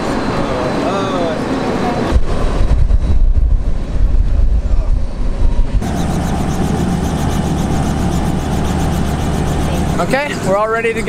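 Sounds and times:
hum of distant engines: 0.0 - 11.0
wind buffeting microphone: 2.1 - 10.7
faint held tone: 5.8 - 10.1.

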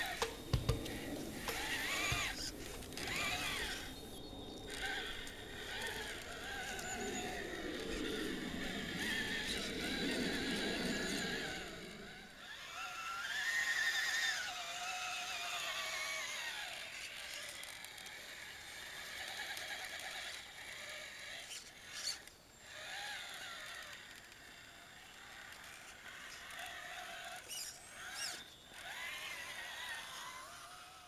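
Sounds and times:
toy car electric motor whining: 0.0 - 31.0.

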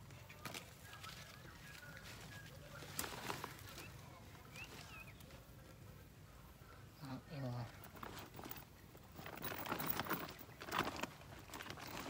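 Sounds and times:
knocks and rustling: 7.8 - 12.0.

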